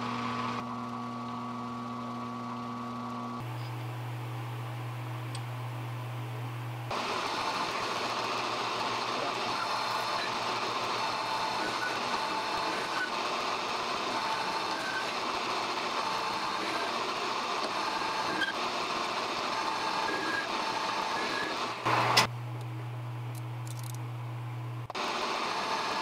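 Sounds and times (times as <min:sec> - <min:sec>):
lathe running with faint whine: 0:00.0 - 0:23.0, 0:24.1 - 0:26.0
low steady hum: 0:02.2 - 0:06.9, 0:21.9 - 0:24.9.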